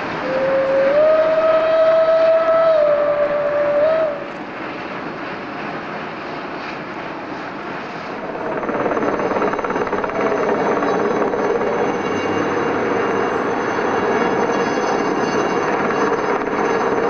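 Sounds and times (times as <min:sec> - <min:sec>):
steam locomotives chuffing: 0:00.0 - 0:05.8.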